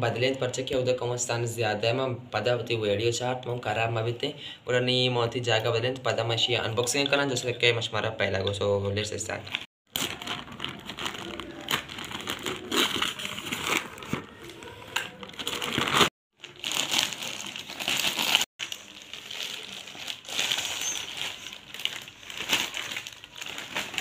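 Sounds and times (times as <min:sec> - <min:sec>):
plastic mailer crinkling: 0:09.9 - 0:24.0.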